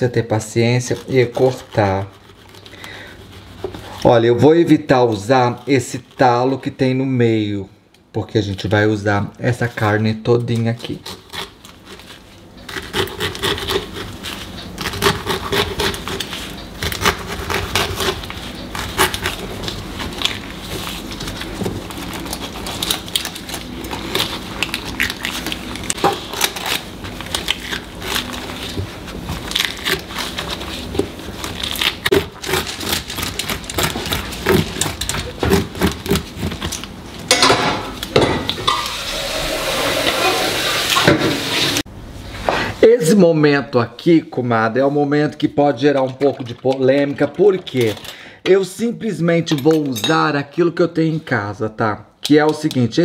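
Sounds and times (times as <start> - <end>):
juicy scraping of fruit: 0.4 - 7.0, 10.4 - 37.1.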